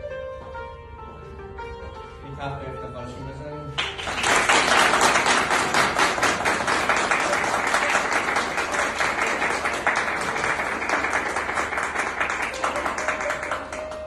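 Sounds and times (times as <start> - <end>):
crowd applauding: 3.8 - 14.0.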